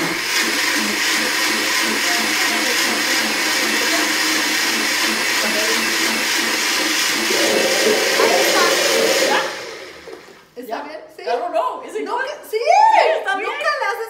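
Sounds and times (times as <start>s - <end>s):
blender pureeing: 0.0s - 10.5s.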